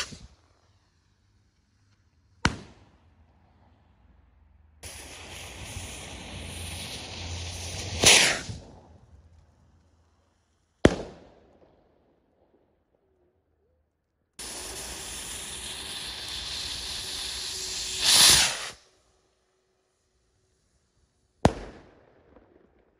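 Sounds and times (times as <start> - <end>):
rocket launch whoosh: 0.0 - 0.4, 4.8 - 9.2, 14.4 - 18.8
firework hissing: 0.0 - 2.4, 4.8 - 10.6, 14.4 - 21.8
firework bang: 4.8 - 9.2, 10.9 - 11.5, 14.4 - 18.8, 21.4 - 22.6.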